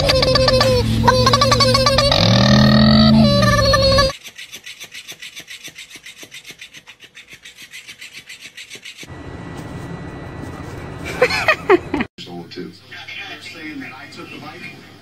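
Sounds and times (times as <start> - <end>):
rasping scratches: 3.2 - 9.1
steady outdoor hiss: 12.2 - 15.0.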